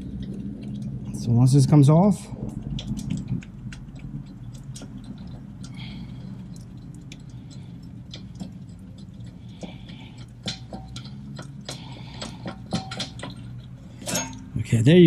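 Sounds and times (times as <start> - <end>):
steady low hum: 0.0 - 15.0
metal scraping: 10.4 - 15.0.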